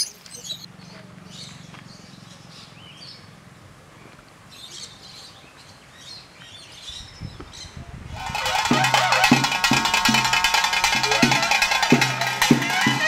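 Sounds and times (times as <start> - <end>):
birds chirping: 0.0 - 3.4.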